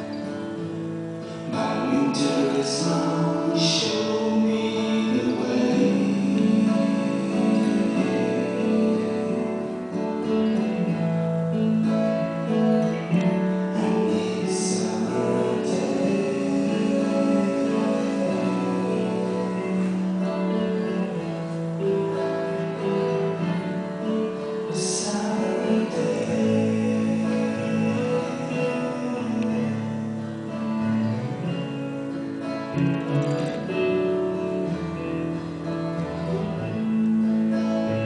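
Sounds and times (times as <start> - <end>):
long held notes: 0.0 - 38.0
plucked acoustic guitar music: 0.0 - 38.0.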